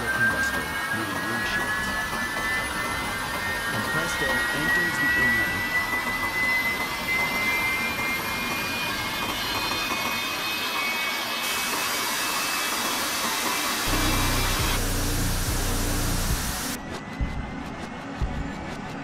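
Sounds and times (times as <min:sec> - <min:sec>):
jet engine roaring: 0:11.8 - 0:18.2
high engine whine: 0:13.5 - 0:19.0.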